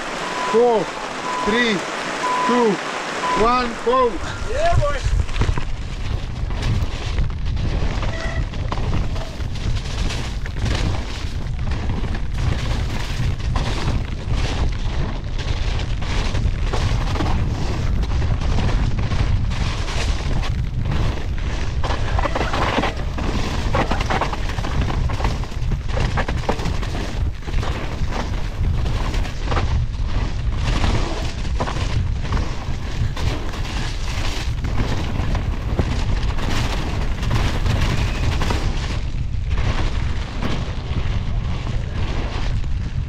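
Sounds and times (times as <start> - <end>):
wind rumble on microphone: 0.0 - 43.0
bike clattering over bumps: 5.0 - 43.0.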